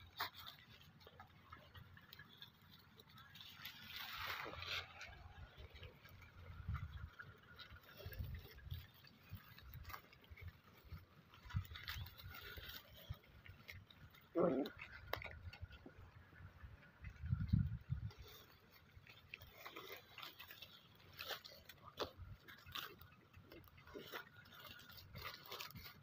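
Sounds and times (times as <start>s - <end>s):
straw rustling and crackling: 0.0s - 26.0s.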